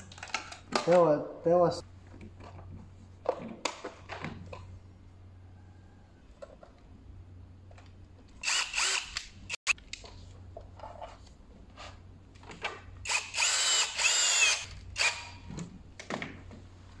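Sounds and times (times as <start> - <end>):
cordless drill whining: 8.4 - 9.6, 13.0 - 15.4.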